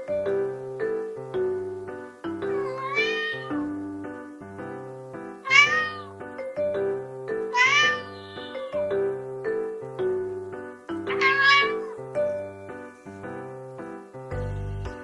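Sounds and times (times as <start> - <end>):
light keyboard music: 0.0 - 15.0
cat meowing: 2.3 - 3.8, 5.4 - 6.2, 7.5 - 8.8, 11.1 - 12.1.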